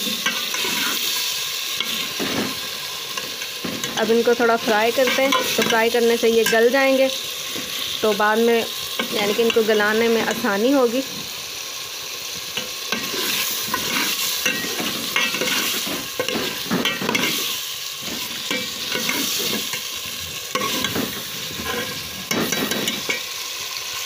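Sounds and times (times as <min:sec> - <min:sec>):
metal ladle scraping pot: 0:00.0 - 0:02.6, 0:13.0 - 0:19.9, 0:20.5 - 0:23.2
vegetables sizzling in oil: 0:00.0 - 0:24.0.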